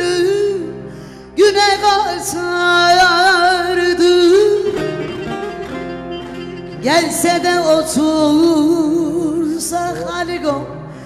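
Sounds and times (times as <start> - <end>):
person singing folk song with vibrato: 0.0 - 11.0
instrumental backing: 0.2 - 11.0.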